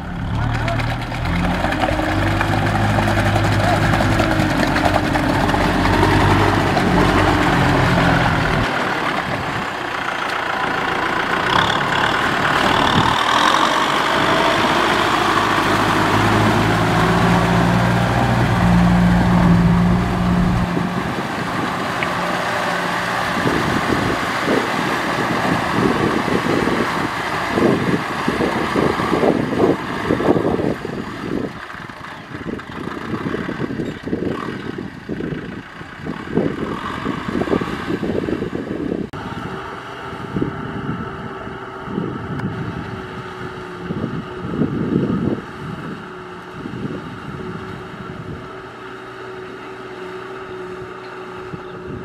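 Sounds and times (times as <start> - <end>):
rotary tiller churning mud: 0.0 - 35.5
tractor diesel engine under load: 0.0 - 52.0
irregular knocks and clatter: 0.4 - 10.4.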